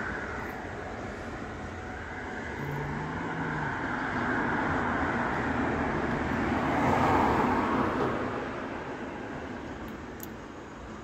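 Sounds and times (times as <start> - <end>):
car driving past: 2.5 - 8.8.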